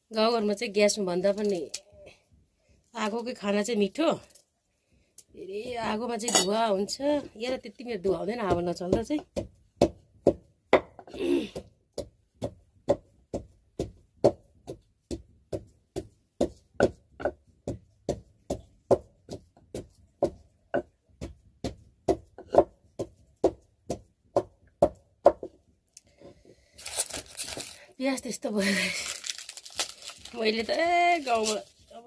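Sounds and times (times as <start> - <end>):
food being pounded by hand: 6.4 - 25.7.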